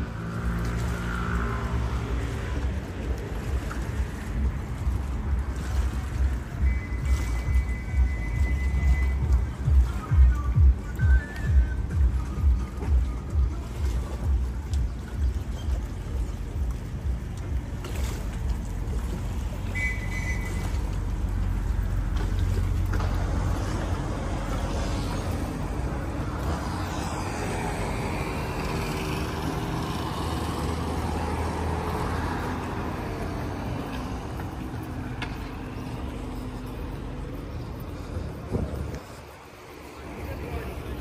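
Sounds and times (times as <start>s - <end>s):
engine rumbling: 0.0s - 41.0s
brief high beep: 6.6s - 9.4s.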